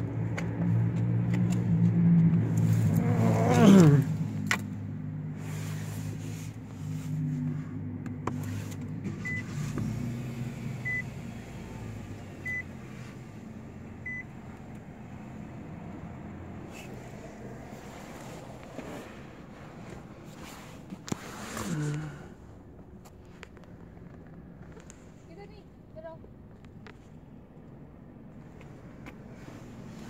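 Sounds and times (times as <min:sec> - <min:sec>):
car warning chime beeping: 0:09.2 - 0:09.5, 0:10.8 - 0:11.2, 0:12.4 - 0:12.7, 0:14.0 - 0:14.4.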